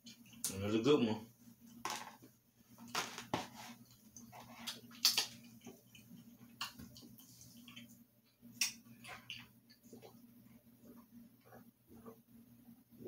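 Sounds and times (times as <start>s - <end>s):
faint low hum: 0.0s - 13.0s
chewing and mouth smacks: 3.8s - 10.3s.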